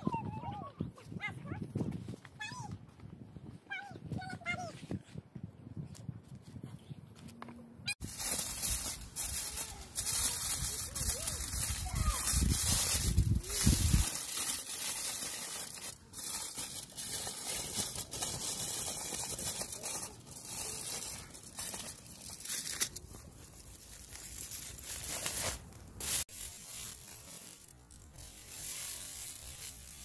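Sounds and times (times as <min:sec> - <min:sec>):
aluminium foil crinkling: 0:08.0 - 0:30.0.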